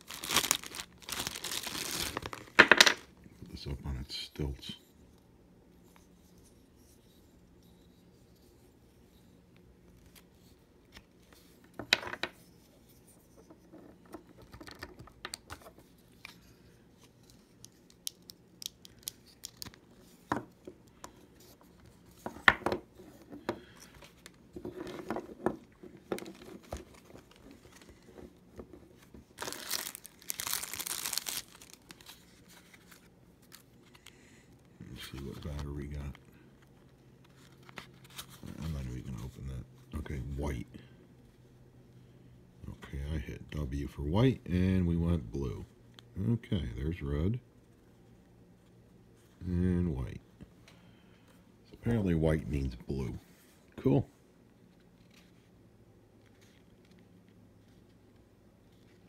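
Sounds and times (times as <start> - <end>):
crinkling tearing noise: 0.0 - 2.6, 29.3 - 34.1.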